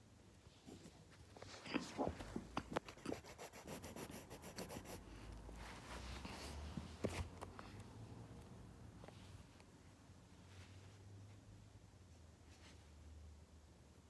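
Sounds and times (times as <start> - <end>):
rubbing and scratching on phone: 0.5 - 7.5.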